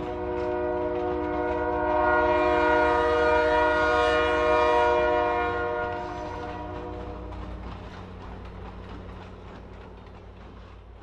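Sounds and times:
passing train rumble: 0.0s - 11.0s
locomotive air horn blast: 0.1s - 7.4s.

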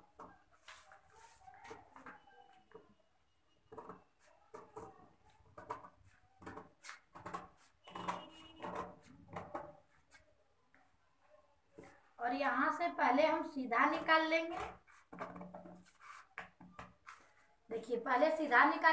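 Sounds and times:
paper rustling: 0.5s - 2.3s.

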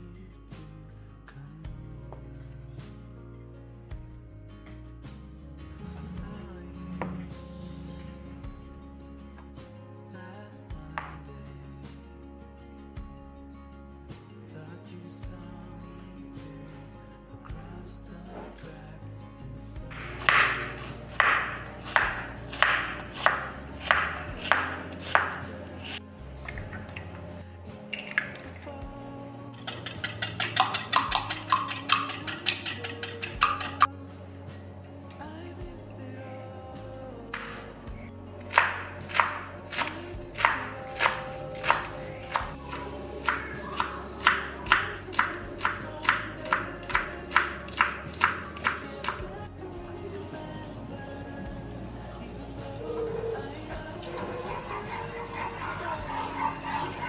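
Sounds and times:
knife slicing an onion: 20.1s - 26.0s, 38.5s - 49.2s, 54.4s - 57.0s
knife tapping wooden board: 20.1s - 26.8s, 38.5s - 49.2s.

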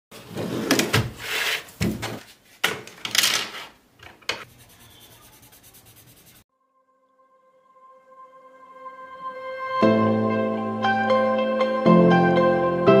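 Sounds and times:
hand brushing across paper: 4.5s - 6.4s.

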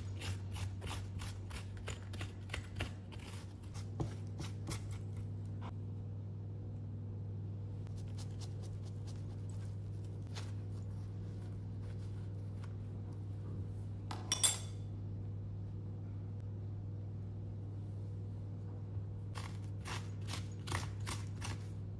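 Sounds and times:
knife scraping eggplant: 0.0s - 5.7s, 19.4s - 21.8s
steady low hum: 0.0s - 21.9s.

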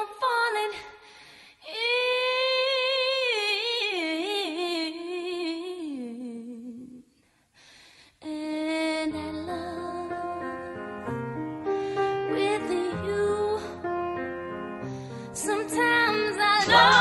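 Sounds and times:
woman singing unaccompanied: 15.4s - 17.0s.

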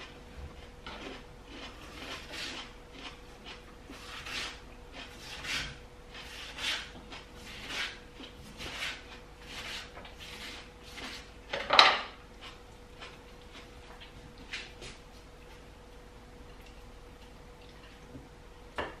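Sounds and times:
knife slicing watermelon on board: 0.9s - 3.2s, 3.9s - 12.2s.

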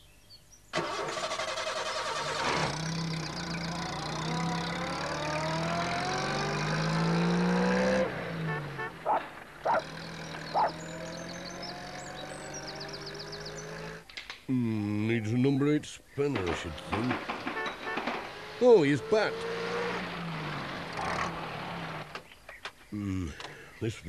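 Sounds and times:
van engine revving: 0.8s - 14.7s, 16.3s - 22.4s
engine sputtering pops: 16.3s - 18.6s.

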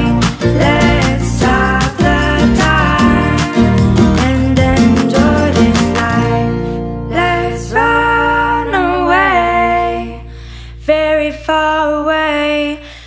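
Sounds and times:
person singing: 0.0s - 12.9s.

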